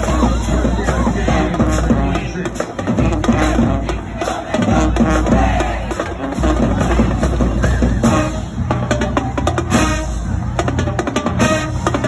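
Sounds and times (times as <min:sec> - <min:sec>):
drumline percussion hits: 0:00.0 - 0:12.0
horns sounding: 0:00.0 - 0:12.0
marching band playing: 0:00.0 - 0:12.0.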